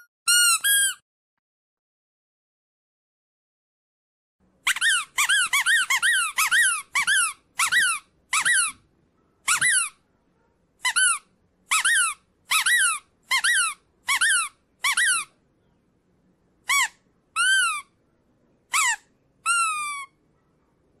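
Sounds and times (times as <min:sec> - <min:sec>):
squeaky dog toy squeaks: 0:00.0 - 0:01.0, 0:04.6 - 0:08.8, 0:09.4 - 0:10.0, 0:10.8 - 0:15.4, 0:16.6 - 0:18.0, 0:18.7 - 0:20.2.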